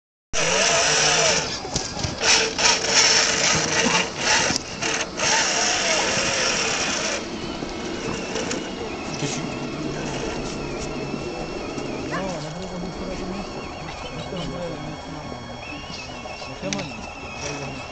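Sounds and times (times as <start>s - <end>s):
electric motor whirring: 0.4s - 17.9s
sharp clicks and knocks: 1.7s - 7.1s.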